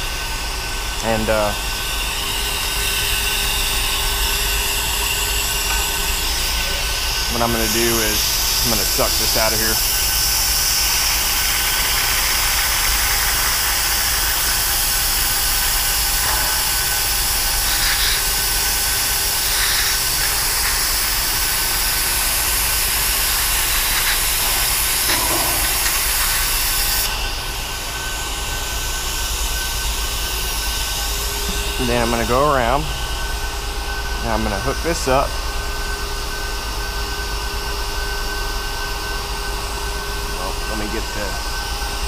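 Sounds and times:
vacuum brake bleeder hissing: 1.0 - 33.4.

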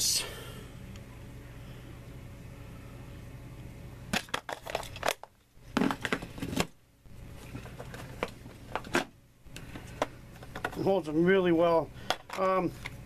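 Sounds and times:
plastic box clicks and clatters: 4.1 - 6.8.

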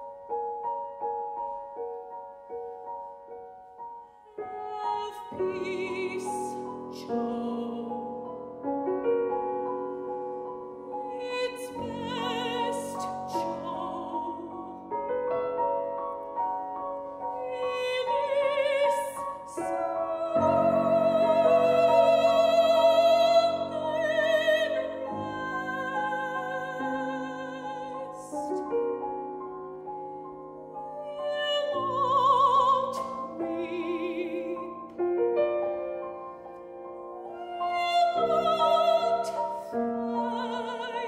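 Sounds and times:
grand piano accompaniment: 0.0 - 41.0
soprano singing opera: 4.3 - 8.3, 10.9 - 15.1, 17.2 - 29.1, 30.7 - 35.2, 37.2 - 41.0.

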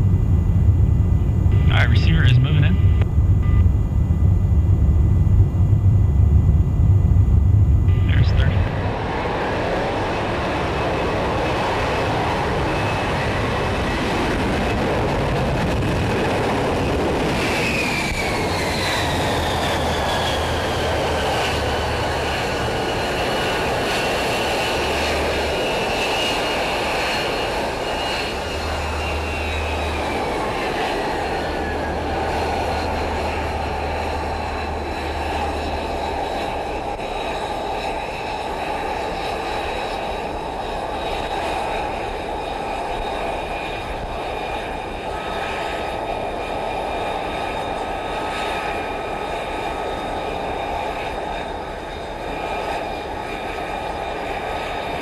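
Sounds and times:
high whine falling in pitch: 0.0 - 9.2, 27.8 - 37.2
jet engine roar: 0.0 - 55.0.

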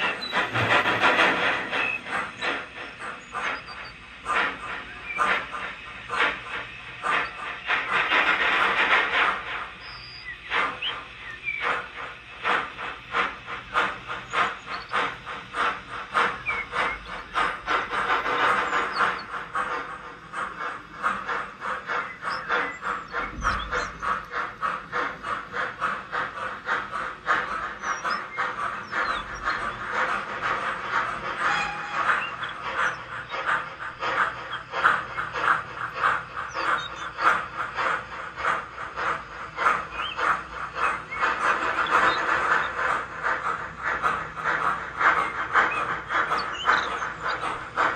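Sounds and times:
model steam locomotive chuffing: 0.0 - 47.9
birds chirping: 32.0 - 47.9.

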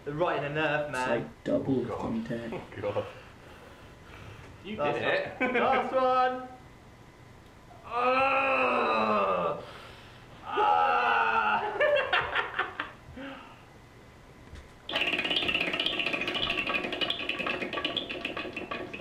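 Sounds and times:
man crying out: 7.9 - 9.6, 10.4 - 11.8.

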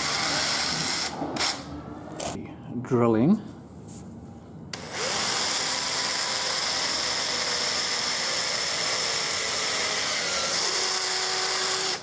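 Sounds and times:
cordless drill boring into wood: 0.0 - 1.6, 4.8 - 12.0.

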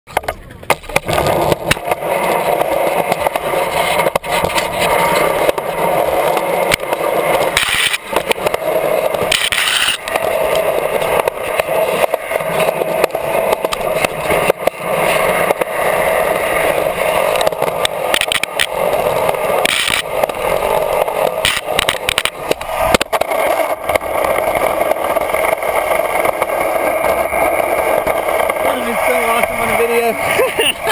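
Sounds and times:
skateboard wheels rolling on concrete: 0.1 - 30.9.

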